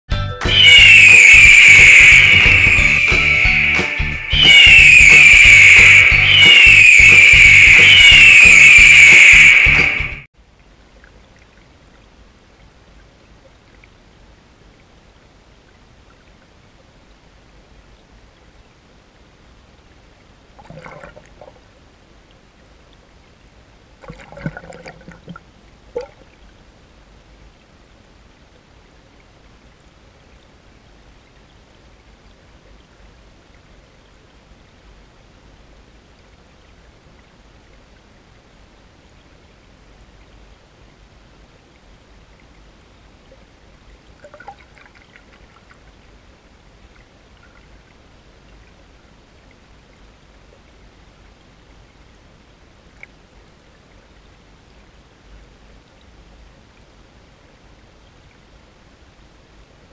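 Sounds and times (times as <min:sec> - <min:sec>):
underwater flowing water rush: 0:00.5 - 0:59.9
water trickling bursts: 0:20.6 - 0:21.6, 0:24.0 - 0:26.5, 0:44.0 - 0:46.2.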